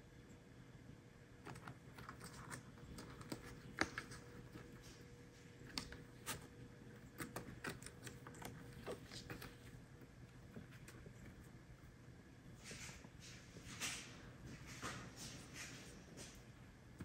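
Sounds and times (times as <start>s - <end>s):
kitten claws scratching cardboard: 1.4s - 11.6s.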